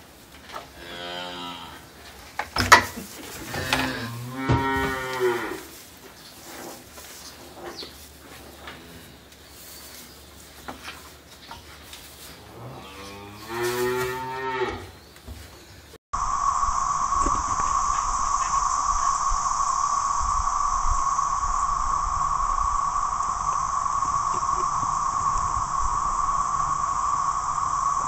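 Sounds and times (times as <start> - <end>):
steady hiss: 16.2 - 28.0.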